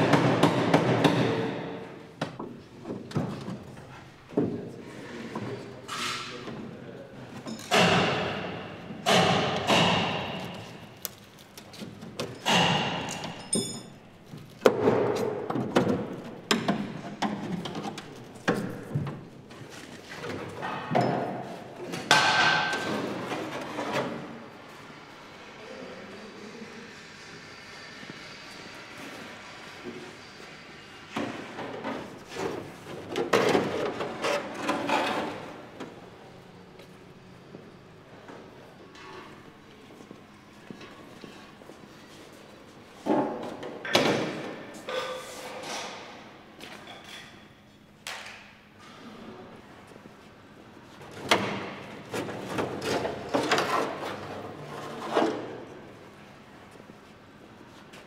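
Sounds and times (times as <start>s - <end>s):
workshop background noise: 0.0s - 58.0s
high metallic clink: 13.3s - 14.0s.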